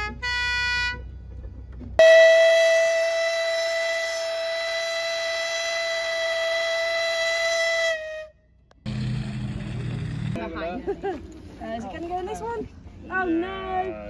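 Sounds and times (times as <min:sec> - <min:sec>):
low hum: 0:01.0 - 0:13.4
steam whistle blowing: 0:02.0 - 0:08.4.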